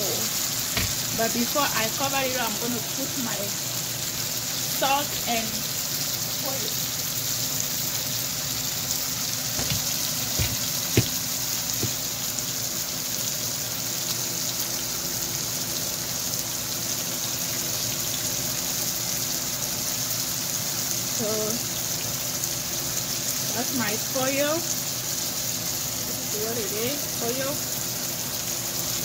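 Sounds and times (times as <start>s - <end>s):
vegetables sizzling in oil: 0.0s - 29.0s
faint knocks: 9.6s - 11.2s, 11.8s - 12.0s.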